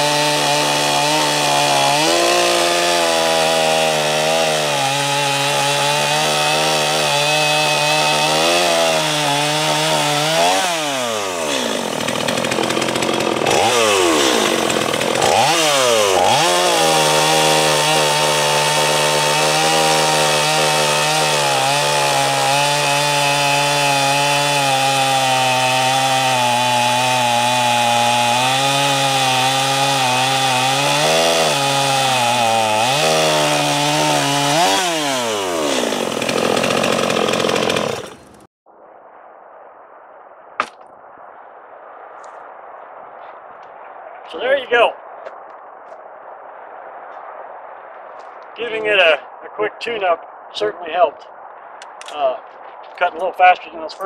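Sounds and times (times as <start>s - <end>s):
chainsaw cutting log: 0.0s - 38.5s.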